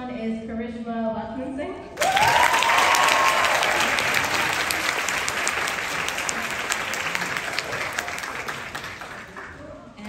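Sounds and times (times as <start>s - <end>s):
audience applauding: 2.0s - 9.7s.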